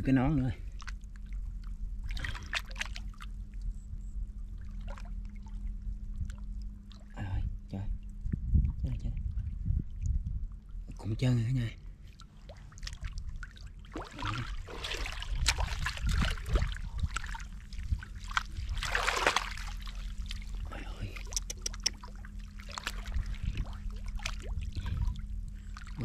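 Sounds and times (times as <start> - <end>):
mud and water squelching: 0.7 - 3.4, 12.1 - 26.0.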